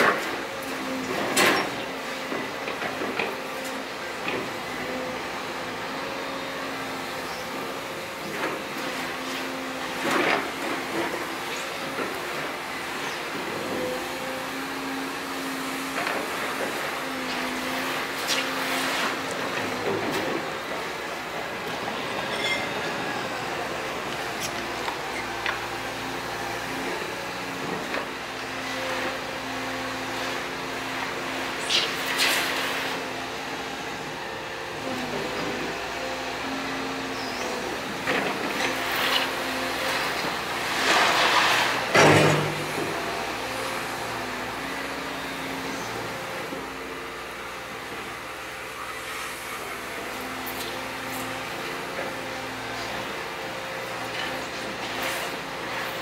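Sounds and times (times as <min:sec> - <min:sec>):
excavator engine running: 0:00.0 - 0:32.1
rush of soil and stones: 0:00.0 - 0:56.0
bucket scraping soil: 0:40.6 - 0:41.8.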